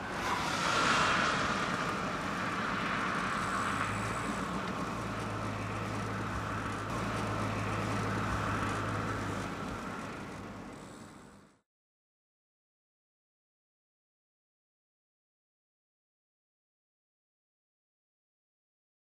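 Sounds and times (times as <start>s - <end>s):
tyre and wind road noise: 0.0s - 11.6s.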